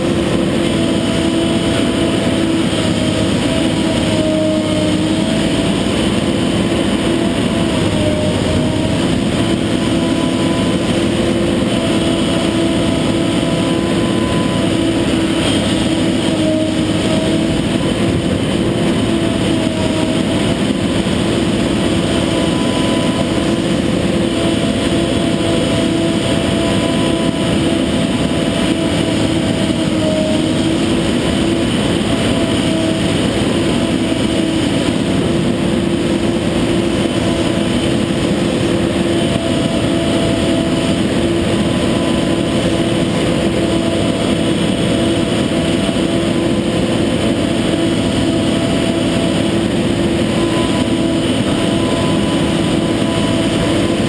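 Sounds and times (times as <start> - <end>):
diesel engine rumbling: 0.0 - 54.0
hydraulic whine: 0.0 - 54.0.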